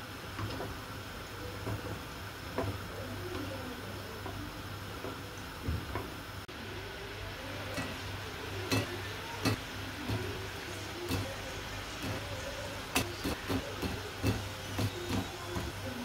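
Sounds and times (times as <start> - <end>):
eggs sizzling in hot oil: 0.0 - 16.0
tongs clicking on metal: 7.6 - 16.0.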